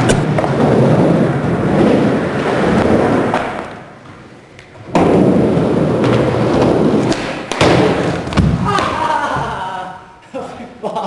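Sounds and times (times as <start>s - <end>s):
loud skateboard clack: 0.0s - 4.0s, 4.8s - 9.6s
skateboard wheels rolling: 0.0s - 9.6s.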